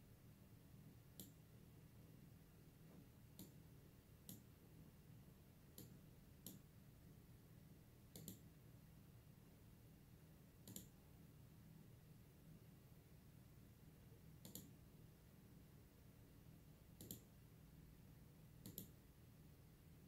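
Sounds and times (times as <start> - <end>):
low steady hum: 0.0 - 20.0
faint computer mouse clicks: 1.2 - 1.4, 3.4 - 3.6, 4.2 - 4.5, 5.8 - 6.6, 8.1 - 8.5, 10.6 - 10.9, 14.4 - 14.7, 17.0 - 17.3, 18.6 - 19.0.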